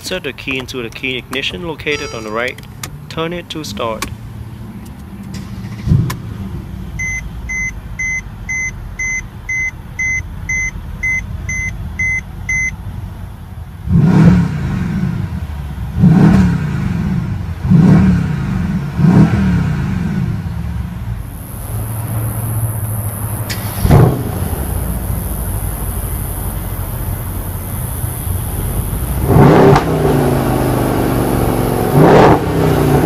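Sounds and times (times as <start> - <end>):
car engine idling and revving: 0.0 - 33.0
car warning chime beeping: 1.4 - 2.6, 7.0 - 12.8, 21.3 - 29.7.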